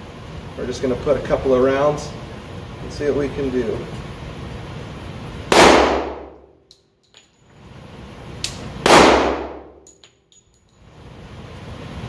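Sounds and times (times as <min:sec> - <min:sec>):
pistol shots echoing: 0:05.5 - 0:06.4, 0:08.8 - 0:09.8.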